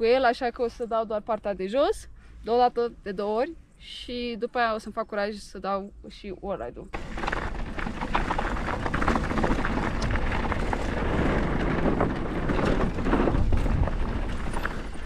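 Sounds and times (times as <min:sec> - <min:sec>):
bike rattling over ground: 0:06.9 - 0:15.0
heavy wind rumble: 0:06.9 - 0:15.0.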